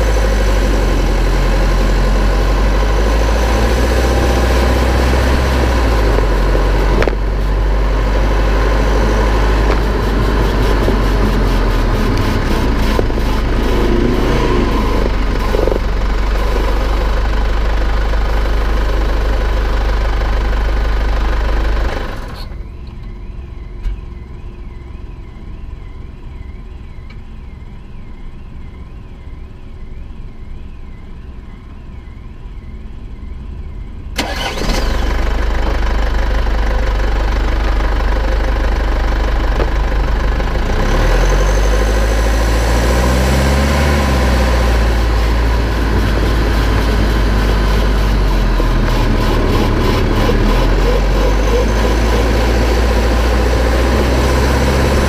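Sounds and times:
car engine revving: 0.0s - 22.4s, 34.2s - 55.0s
road tyre and wind rush: 0.0s - 55.0s.

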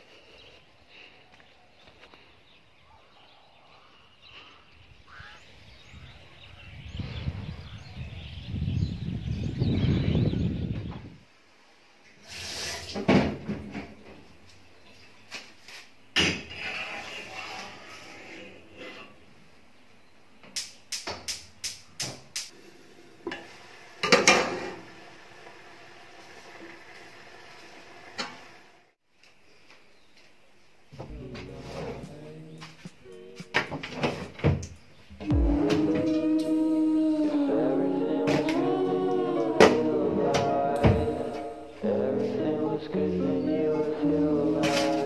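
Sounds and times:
fowl calling faintly: 3.7s - 5.5s
low rumble: 35.3s - 37.8s.

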